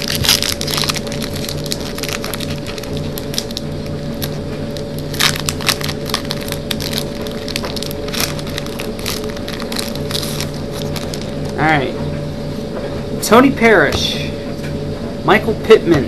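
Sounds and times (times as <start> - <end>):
wrapper tearing and crinkling: 0.0 - 11.6
low background hum: 0.0 - 16.0.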